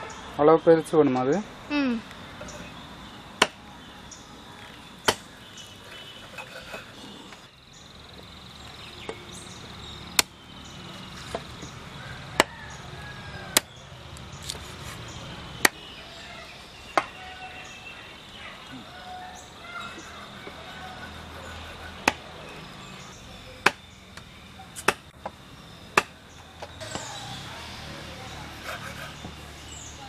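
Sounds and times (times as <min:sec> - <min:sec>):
knife chopping on wooden block: 0:21.6 - 0:22.2.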